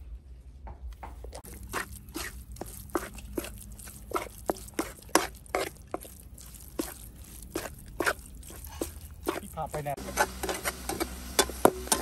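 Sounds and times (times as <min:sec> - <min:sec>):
metal spatula scraping frying pan: 0:07.5 - 0:12.0.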